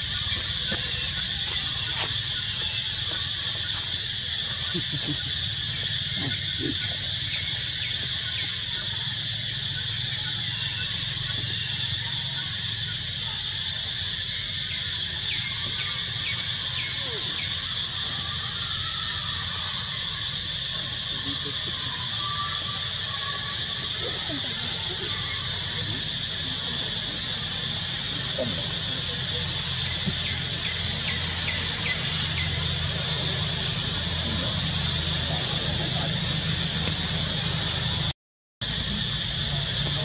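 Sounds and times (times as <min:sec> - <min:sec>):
insects droning: 0:00.0 - 0:40.0.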